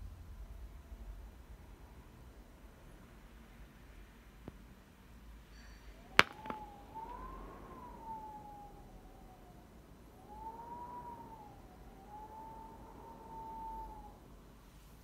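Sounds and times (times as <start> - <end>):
wind whistling through a gap: 5.9 - 15.0.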